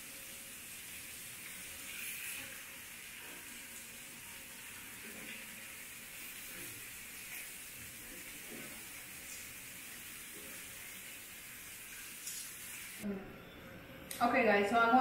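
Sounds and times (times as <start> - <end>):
fish frying in hot oil: 0.0 - 13.0.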